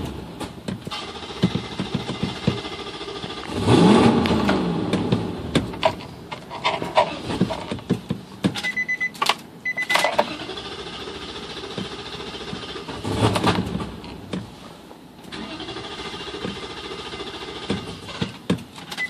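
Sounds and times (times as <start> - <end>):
high beep: 8.6 - 10.0.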